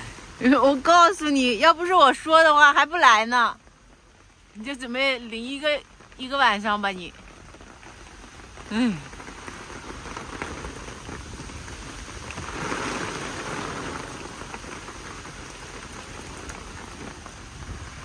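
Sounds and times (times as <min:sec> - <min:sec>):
heavy rain pattering: 0:00.0 - 0:18.0.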